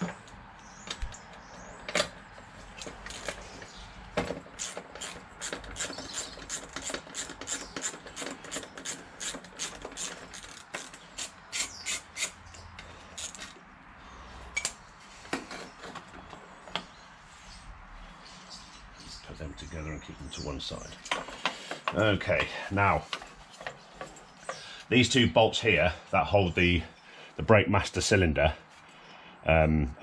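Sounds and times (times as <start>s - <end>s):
socket ratchet clicking: 4.6s - 12.6s.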